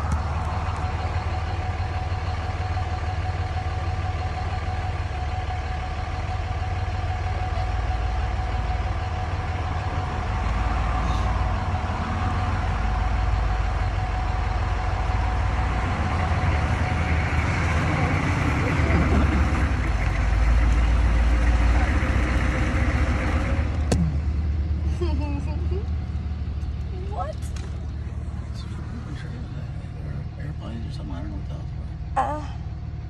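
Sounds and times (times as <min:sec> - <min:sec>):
truck engine idling: 0:00.0 - 0:33.0.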